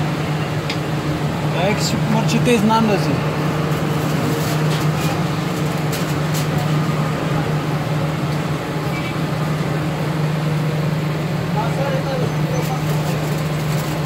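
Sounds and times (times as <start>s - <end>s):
loud mechanical hum: 0.0s - 14.0s.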